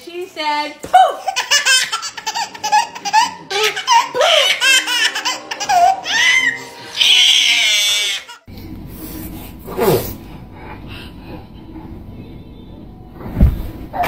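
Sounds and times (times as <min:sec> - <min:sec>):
room hum: 0:00.0 - 0:14.0
baby laughing: 0:01.2 - 0:08.4.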